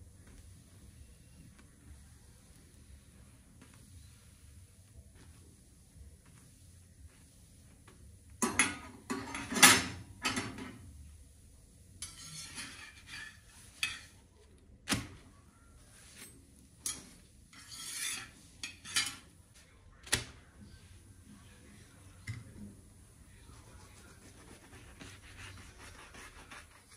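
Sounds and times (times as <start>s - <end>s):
metal spatula scraping pan: 12.0s - 14.2s, 16.9s - 19.1s.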